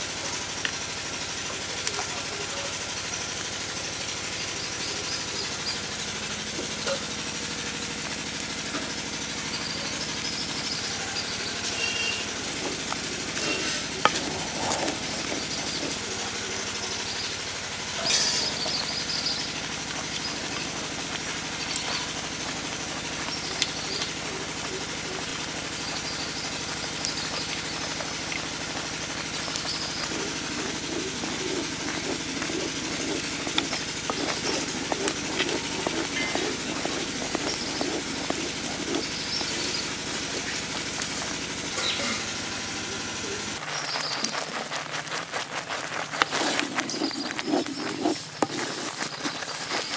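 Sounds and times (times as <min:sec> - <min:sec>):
pulp simmering with hiss: 0:00.1 - 0:18.0, 0:18.6 - 0:41.7
wooden spatula scraping pot: 0:11.6 - 0:41.7, 0:43.9 - 0:49.9
wood fire crackles: 0:19.3 - 0:41.7.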